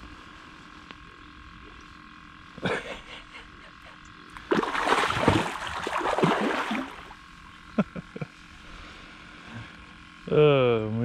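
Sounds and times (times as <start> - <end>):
fish thrashing and splashing: 4.4 - 7.2.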